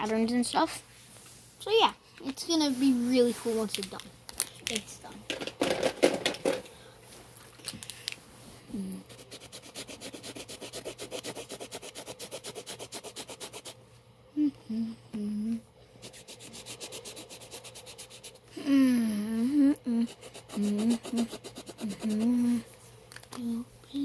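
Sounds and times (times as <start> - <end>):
person humming: 8.7 - 9.0, 14.3 - 15.7, 18.5 - 22.7
marker scribbling: 9.1 - 13.8, 16.0 - 18.5, 20.1 - 22.6.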